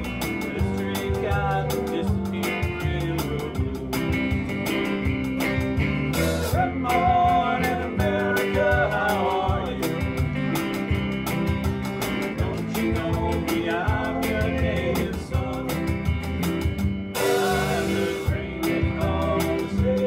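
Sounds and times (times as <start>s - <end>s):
keyboard: 0.0s - 20.0s
steady drum beat: 0.0s - 20.0s
strummed guitars: 0.0s - 20.0s
person singing: 0.3s - 4.3s, 6.5s - 10.2s, 12.2s - 16.0s, 17.2s - 20.0s.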